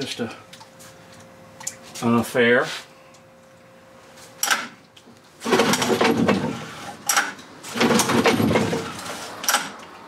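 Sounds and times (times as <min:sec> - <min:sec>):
outboard engine cranking: 0:05.4 - 0:09.7
starter rope pulls: 0:05.4 - 0:09.7.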